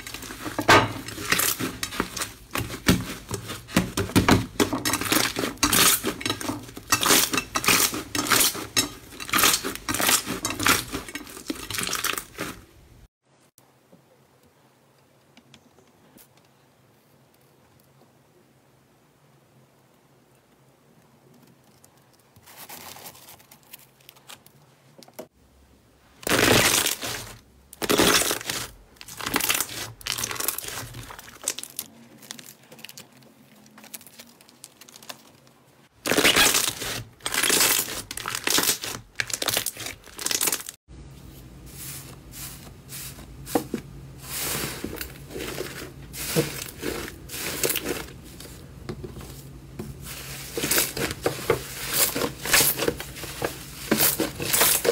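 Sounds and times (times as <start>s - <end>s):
slime crackling and tearing: 26.2s - 40.8s.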